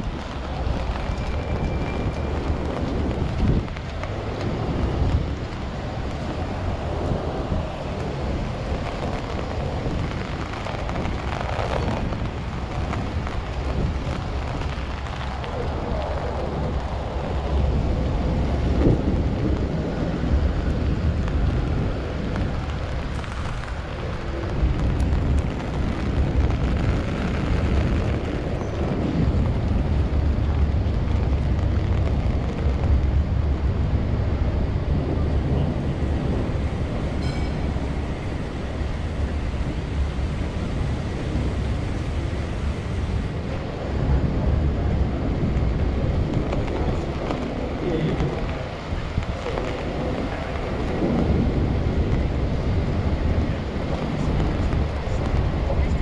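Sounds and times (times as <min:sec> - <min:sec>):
city street noise: 0:00.0 - 0:56.0
rain: 0:00.0 - 0:56.0
wind buffeting microphone: 0:00.0 - 0:56.0.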